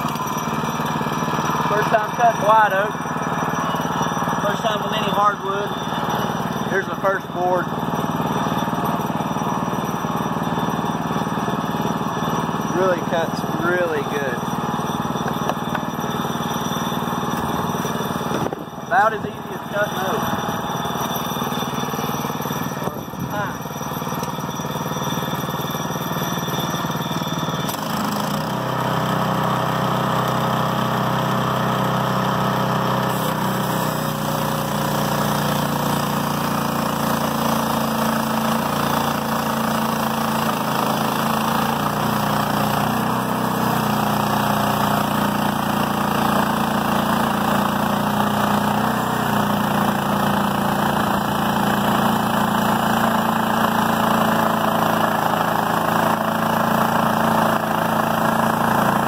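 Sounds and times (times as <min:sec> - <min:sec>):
gas engine running: 0:00.0 - 0:59.0
band saw blade cutting log: 0:27.7 - 0:28.7, 0:33.0 - 0:59.0.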